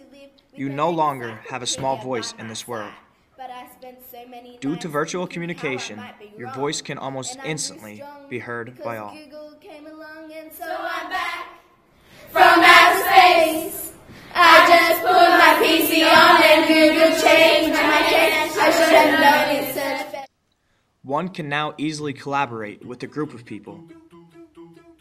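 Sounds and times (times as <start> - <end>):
girl singing: 7.8 - 11.6, 12.3 - 20.3.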